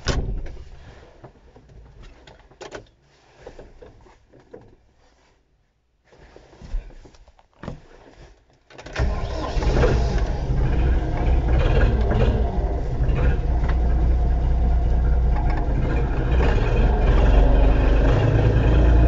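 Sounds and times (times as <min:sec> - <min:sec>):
tractor diesel engine starting: 0:08.9 - 0:19.0.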